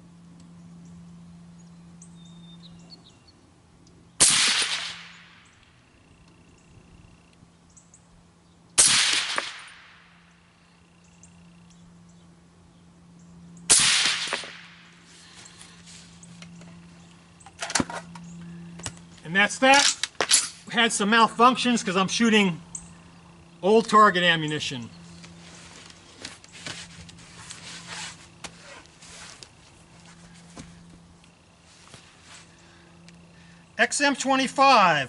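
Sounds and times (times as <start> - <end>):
suppressed rifle shots: 4.2 - 5.5, 8.8 - 10.0, 13.7 - 14.9.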